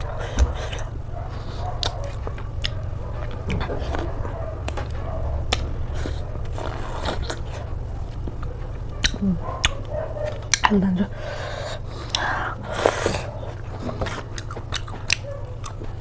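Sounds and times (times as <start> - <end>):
chewing and biting: 0.0 - 16.0
steady low hum: 0.0 - 16.0
mouth clicks and smacks: 1.8 - 7.7, 9.0 - 10.7, 12.1 - 16.0.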